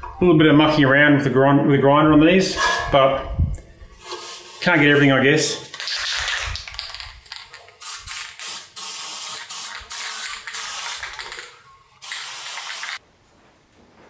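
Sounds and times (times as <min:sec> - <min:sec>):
aerosol spray can hissing: 0:05.8 - 0:13.0.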